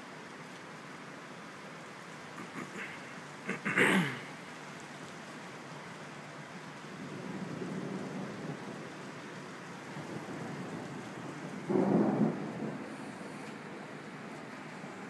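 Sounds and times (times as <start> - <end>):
steady rain: 0.0 - 15.0
thunder: 10.0 - 13.8.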